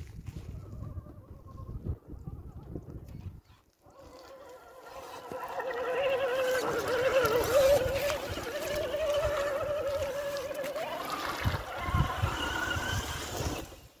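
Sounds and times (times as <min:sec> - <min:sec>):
water splashing: 0:04.0 - 0:13.8
electric motor whining: 0:04.2 - 0:14.0.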